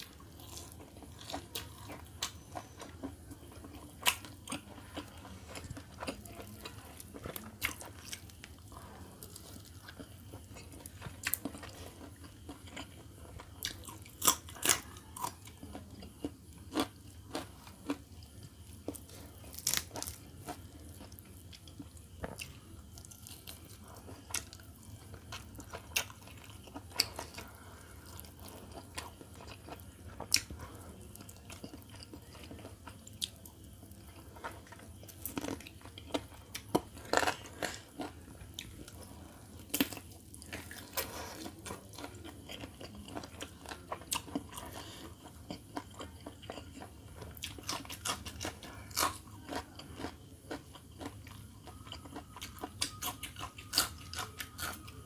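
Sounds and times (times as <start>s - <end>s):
crunch of biting chilli: 0.1s - 18.0s, 18.9s - 21.2s, 34.4s - 39.0s, 39.6s - 54.9s
wet chewing: 18.8s - 55.0s
meat being torn: 19.5s - 20.2s.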